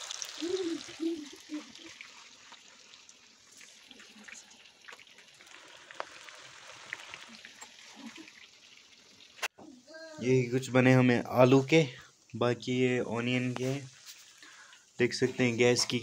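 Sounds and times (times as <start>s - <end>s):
oil sizzling in a pan: 0.0s - 12.4s
small pops of frying oil: 2.3s - 9.7s.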